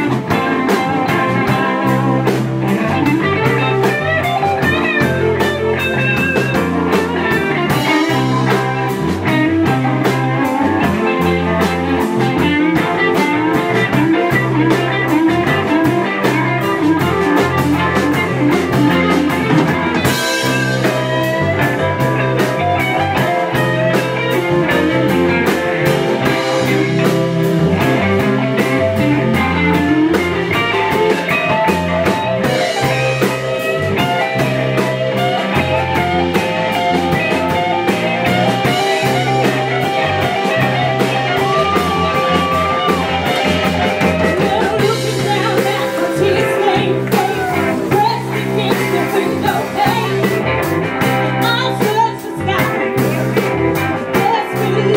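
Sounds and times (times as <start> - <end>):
drums: 0.0 - 54.9
electric bass: 0.0 - 54.9
guitar: 0.0 - 54.9
woman singing: 44.4 - 50.3, 51.4 - 52.8, 54.2 - 54.9.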